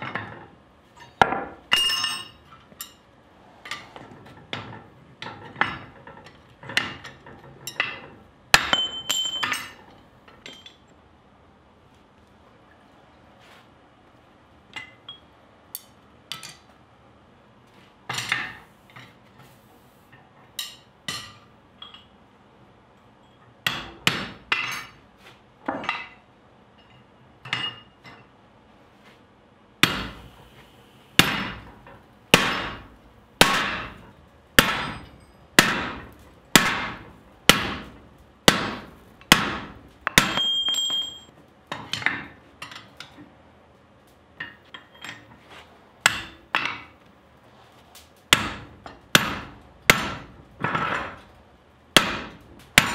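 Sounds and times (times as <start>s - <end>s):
tools clinking on iron: 1.0s - 3.1s, 4.5s - 10.9s, 14.7s - 16.7s, 20.6s - 22.1s, 26.8s - 28.3s, 33.5s - 36.3s, 40.0s - 43.2s, 44.4s - 45.4s
high ringing tone from steel: 1.7s - 3.0s, 8.7s - 9.8s, 40.2s - 41.3s
hammer striking chisel on steel: 8.6s - 9.8s, 29.8s - 30.4s, 31.2s - 41.3s, 46.0s - 46.9s, 48.3s - 51.1s, 52.0s - 52.9s.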